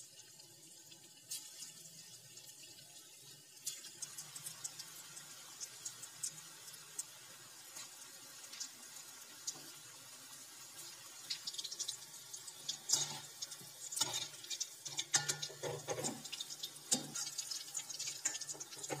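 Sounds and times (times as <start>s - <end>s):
chicken sizzling in hot oil: 0.0s - 19.0s
metal skimmer scraping a pan: 12.7s - 19.0s.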